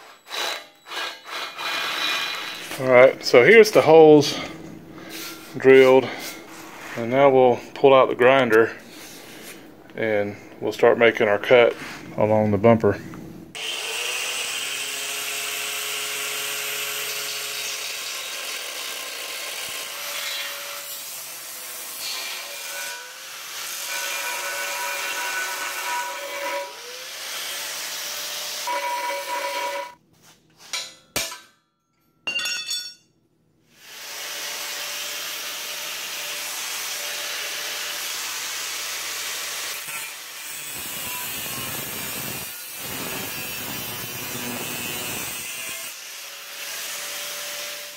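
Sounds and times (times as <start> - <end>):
angle grinder cutting metal: 0.0 - 2.9, 13.6 - 30.0, 33.8 - 47.9.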